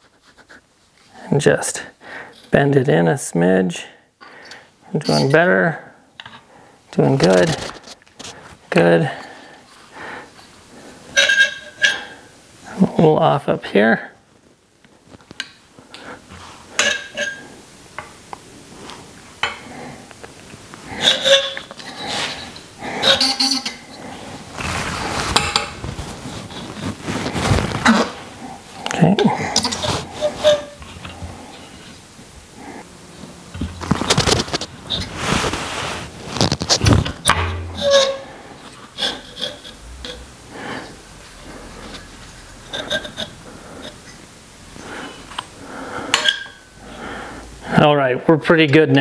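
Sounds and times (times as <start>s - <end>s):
tool scraping tyre and rim: 11.1s - 12.2s, 16.8s - 17.5s, 20.9s - 28.2s, 29.5s - 32.0s, 33.6s - 41.0s, 41.8s - 44.1s
ringing squeak: 22.3s - 23.8s, 37.3s - 38.3s.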